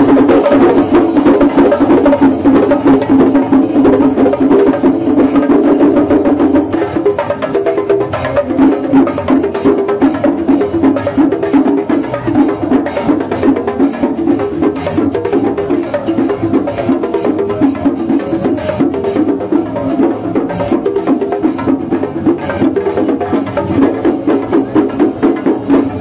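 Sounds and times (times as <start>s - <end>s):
drums struck with sticks: 0.0s - 26.0s
metallic cymbal clashes: 0.0s - 26.0s.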